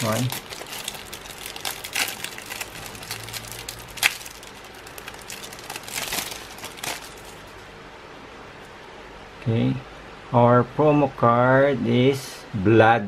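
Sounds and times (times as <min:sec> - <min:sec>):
plastic wrapper crinkling: 0:00.0 - 0:07.7.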